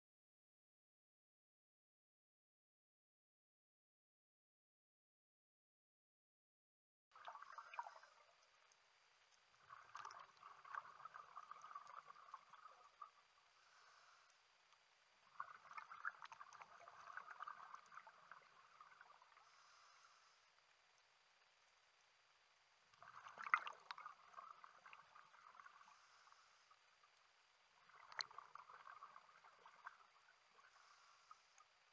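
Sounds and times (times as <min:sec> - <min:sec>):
underwater air bubbles gurgling: 0:07.2 - 0:08.5, 0:09.6 - 0:14.3, 0:15.2 - 0:20.3, 0:23.0 - 0:26.6, 0:27.8 - 0:31.6.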